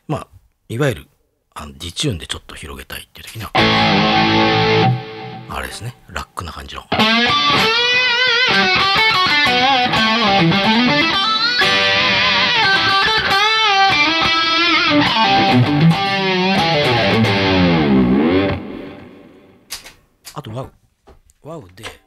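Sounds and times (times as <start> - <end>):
electric guitar lead with vibrato: 3.6 - 5.7, 6.9 - 19.7.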